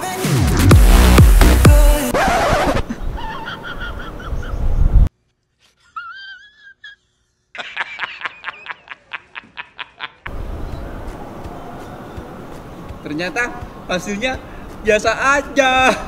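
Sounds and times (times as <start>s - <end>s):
background music: 0.0s - 2.2s
man laughing heartily: 2.8s - 4.7s, 5.8s - 10.3s.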